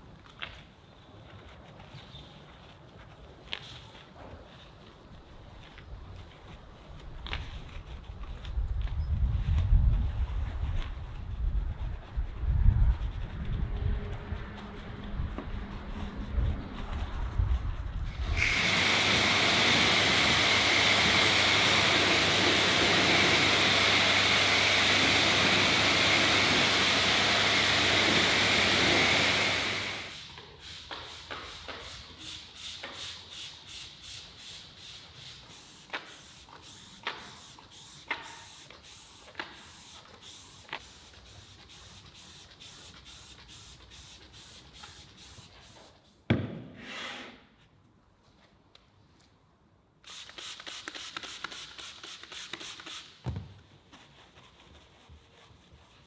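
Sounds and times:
hand trigger sprayer pumping: 0:18.1 - 0:45.4, 0:50.0 - 0:53.2
pressure washer spraying water: 0:18.2 - 0:45.4, 0:50.1 - 0:53.2.

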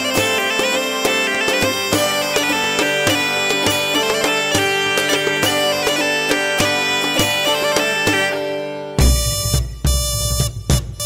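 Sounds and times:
bagpipes playing over a drone: 0:00.0 - 0:09.5
drum strokes: 0:09.0 - 0:11.0.

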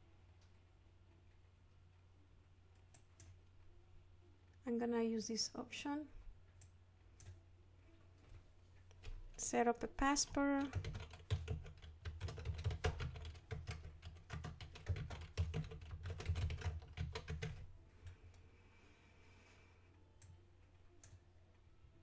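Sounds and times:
computer keyboard typing: 0:02.8 - 0:03.4, 0:10.1 - 0:17.7, 0:21.0 - 0:21.2.

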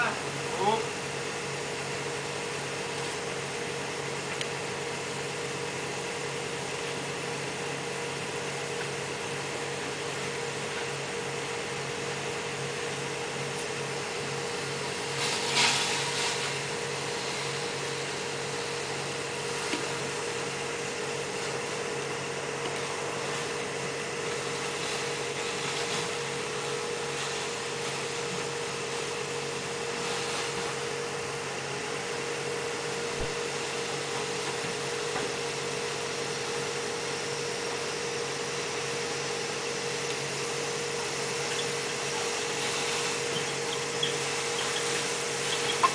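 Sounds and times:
blower motor droning: 0:00.0 - 0:45.9
brief hiss: 0:15.2 - 0:16.6.

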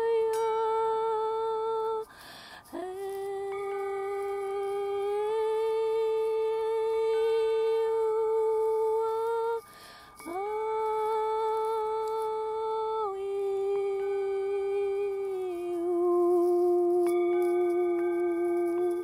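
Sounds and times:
faint steady high tone: 0:00.0 - 0:19.0
person humming held notes: 0:00.0 - 0:19.0
soft breath: 0:02.0 - 0:02.8, 0:09.6 - 0:10.3.

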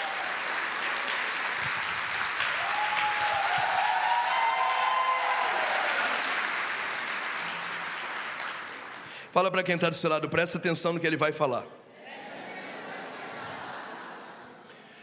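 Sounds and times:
long held cheer: 0:00.0 - 0:07.8
congregation applauding: 0:00.0 - 0:09.9.

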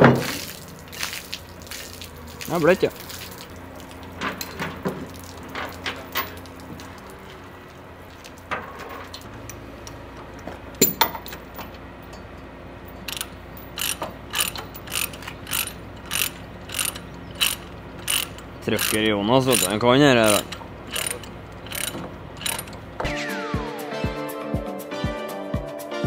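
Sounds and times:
ratchet clicking: 0:13.0 - 0:23.0.

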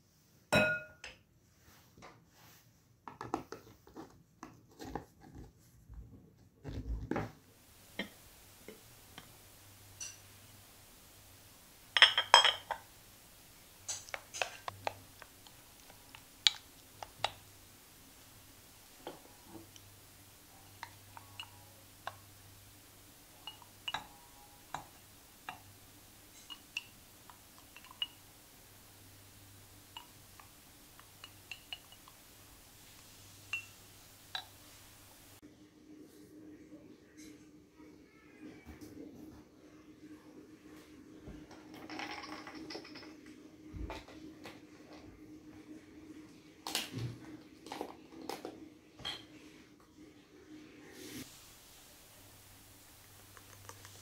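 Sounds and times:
glassware clinking: 0:00.5 - 0:01.2, 0:09.9 - 0:10.4, 0:11.9 - 0:12.9, 0:20.6 - 0:22.3, 0:23.4 - 0:25.7, 0:26.3 - 0:28.3, 0:31.0 - 0:32.2, 0:33.5 - 0:34.7, 0:41.7 - 0:43.3, 0:49.0 - 0:49.3
spoon scraping a glass bowl: 0:33.5 - 0:33.8.

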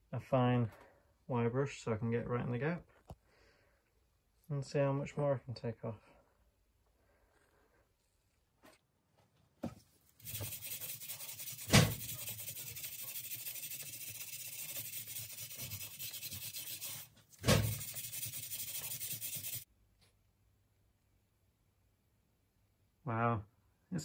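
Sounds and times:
wire brush scratching metal: 0:10.2 - 0:19.7.

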